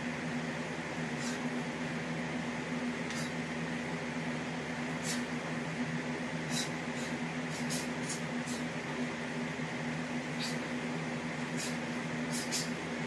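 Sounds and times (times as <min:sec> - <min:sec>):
low electrical hum: 0:00.0 - 0:13.0
sharp hissing swishes of kicks: 0:03.1 - 0:03.5, 0:04.9 - 0:05.4, 0:06.4 - 0:08.8, 0:10.3 - 0:10.8, 0:11.4 - 0:12.8.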